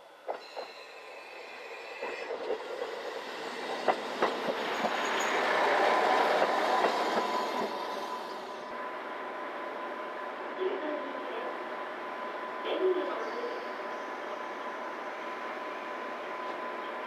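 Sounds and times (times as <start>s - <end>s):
train rumble: 0.0s - 8.7s
railcar wheels clicking over rail joints: 3.5s - 7.8s.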